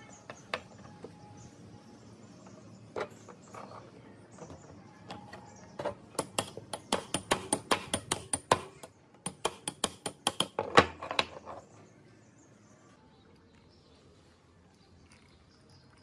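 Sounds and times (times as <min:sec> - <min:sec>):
small hammer tapping on metal: 0:06.2 - 0:10.6.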